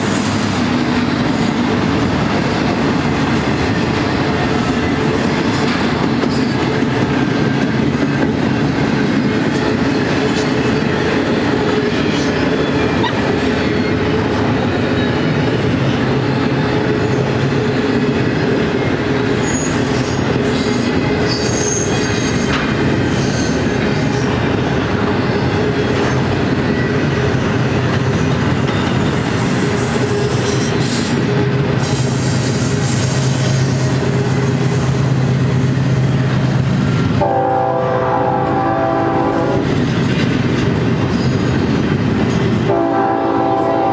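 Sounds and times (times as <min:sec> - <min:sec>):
steel wheels rumbling on rail: 0:00.0 - 0:43.9
high wheel squeals: 0:19.3 - 0:23.8.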